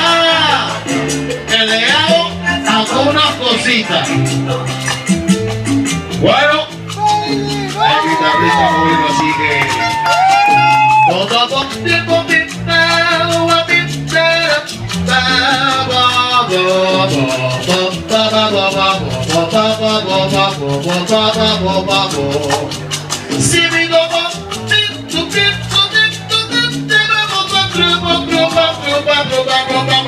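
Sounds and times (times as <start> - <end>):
salsa music: 0.0 - 30.0.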